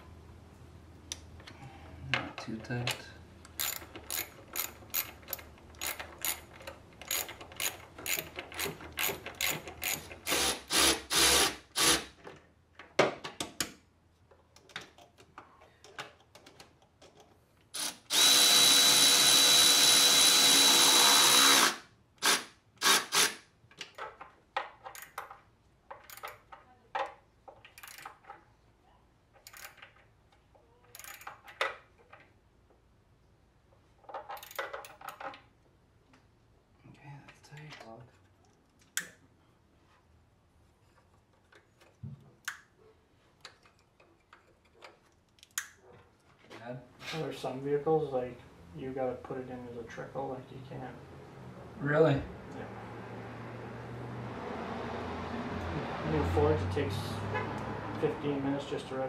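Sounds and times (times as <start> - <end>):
ratchet wrench clicking: 3.6 - 11.4, 30.9 - 31.3
electric ratchet whining: 17.8 - 23.4.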